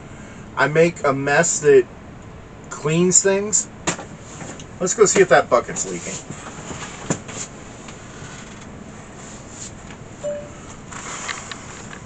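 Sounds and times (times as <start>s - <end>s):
rustling and shuffling: 5.2s - 12.0s.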